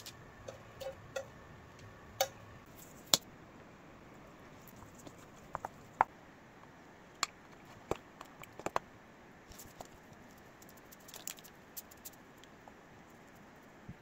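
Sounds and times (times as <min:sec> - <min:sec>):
faint steady hiss: 0:00.0 - 0:14.0
small objects tapping and clicking: 0:10.6 - 0:12.1.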